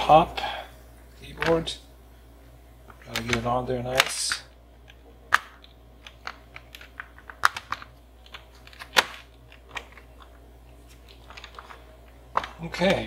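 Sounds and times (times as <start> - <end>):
plastic keyboard case snapping: 6.2 - 10.1.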